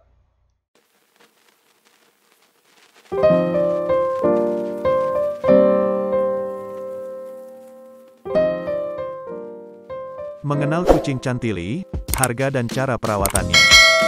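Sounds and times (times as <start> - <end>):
piano chords: 3.2 - 12.0.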